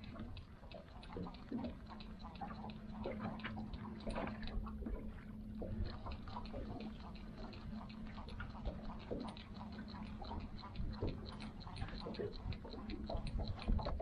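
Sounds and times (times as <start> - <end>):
boat motor humming: 0.0 - 14.0
fishing reel clicking: 5.6 - 14.0.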